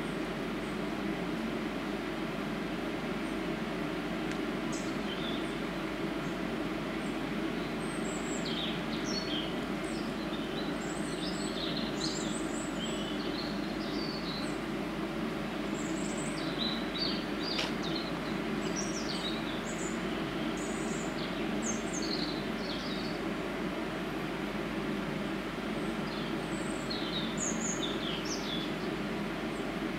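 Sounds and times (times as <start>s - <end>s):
birds chirping: 4.6s - 14.8s, 15.5s - 23.4s, 25.6s - 29.9s.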